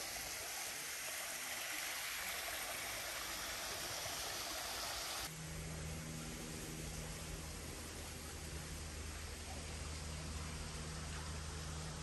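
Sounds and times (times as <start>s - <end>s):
low steady hum: 5.2s - 12.0s.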